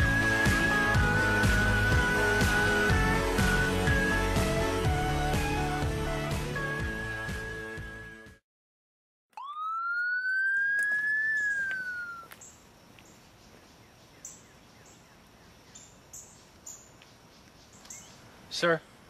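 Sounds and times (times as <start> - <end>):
police siren wailing: 9.4 - 12.3
short high chirps: 9.4 - 12.3.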